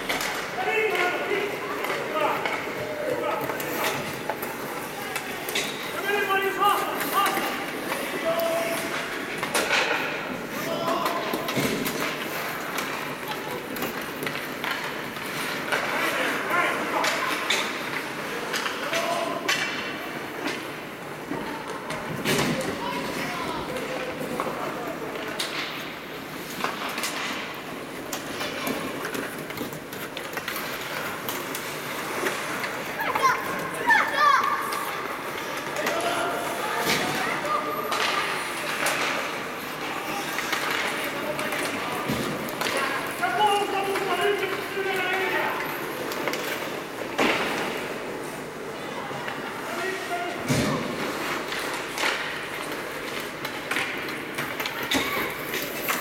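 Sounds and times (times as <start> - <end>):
hockey sticks and puck clacking: 0.0 - 56.0
skates scraping on ice: 0.0 - 56.0
skate blades scraping on ice: 26.2 - 48.6.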